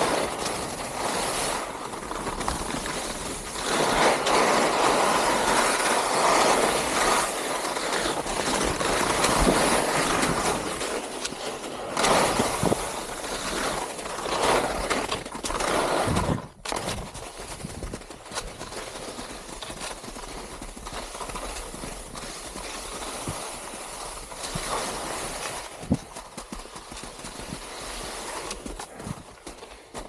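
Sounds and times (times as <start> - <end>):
skis scraping over snow: 0.0 - 30.0.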